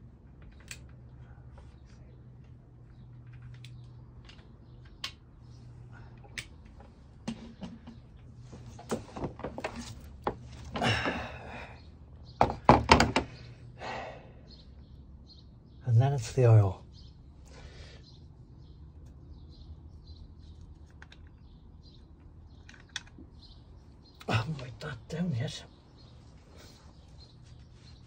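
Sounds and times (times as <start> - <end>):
loud thunks: 12.4 - 13.4.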